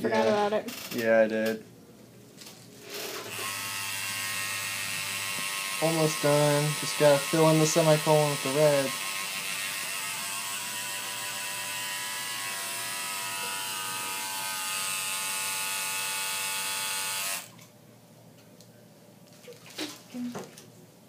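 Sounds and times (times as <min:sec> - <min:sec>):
tattoo machine buzzing: 0:02.9 - 0:17.5.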